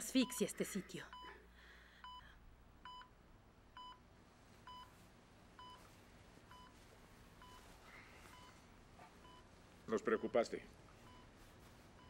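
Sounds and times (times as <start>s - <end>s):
low steady room hum: 0.0s - 12.0s
heart monitor beeping: 2.0s - 3.1s, 3.8s - 4.0s, 4.6s - 5.0s, 5.6s - 5.9s, 6.5s - 6.8s, 7.4s - 12.0s.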